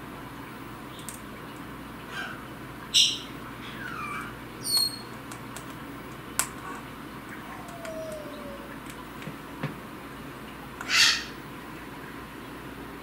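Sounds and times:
cockatoo squeaks and whistles: 3.0s - 5.1s.

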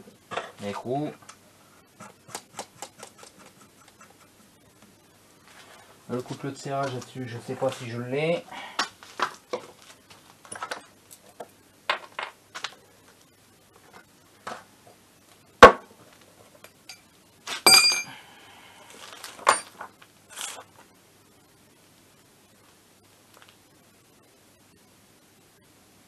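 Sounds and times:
ringing metallic clink: 17.7s - 18.1s.

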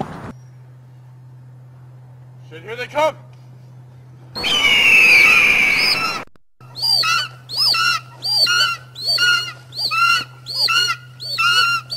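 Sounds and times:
low steady hum: 0.1s - 11.9s
synthetic bird screech: 4.4s - 6.2s, 6.8s - 11.9s.

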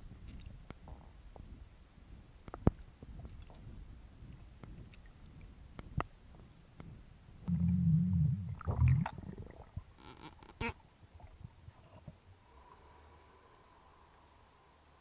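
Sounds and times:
underwater clicks and knocks: 2.4s - 5.1s
loud low underwater rumble: 7.4s - 9.9s.

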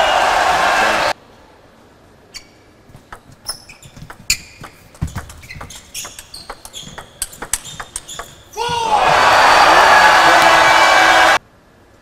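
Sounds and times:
shoes squeaking on floor: 2.3s - 9.3s
table tennis ball clicking: 2.9s - 8.6s.

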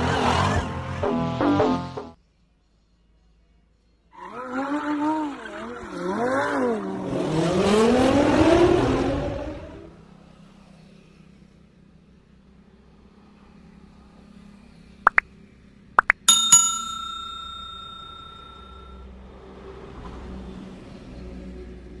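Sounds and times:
notification bell ding: 16.0s - 18.9s.

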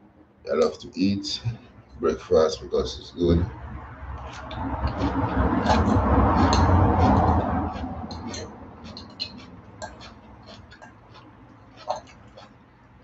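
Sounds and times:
low rumble: 1.2s - 10.4s
fork scraping ceramic bowl: 4.2s - 12.6s.

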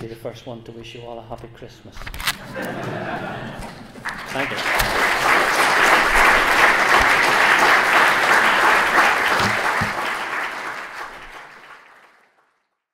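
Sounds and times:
audience applauding: 3.6s - 12.7s.

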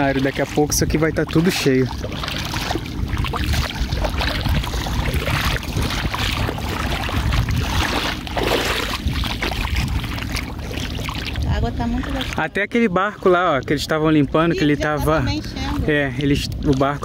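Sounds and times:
wind buffeting microphone: 0.0s - 12.6s
river water flowing: 0.0s - 17.0s.

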